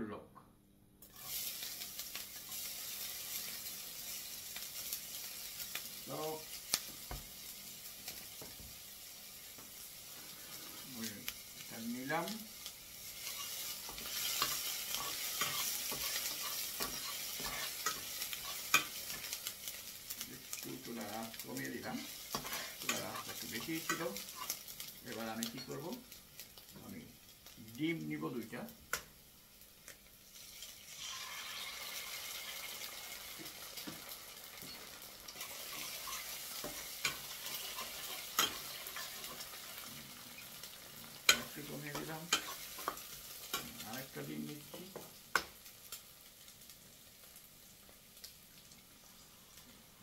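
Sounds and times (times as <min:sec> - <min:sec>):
onion sizzling in oil: 0:01.0 - 0:50.0
spatula scraping a pan: 0:13.2 - 0:19.4, 0:21.8 - 0:24.6, 0:34.6 - 0:39.9, 0:41.3 - 0:43.8.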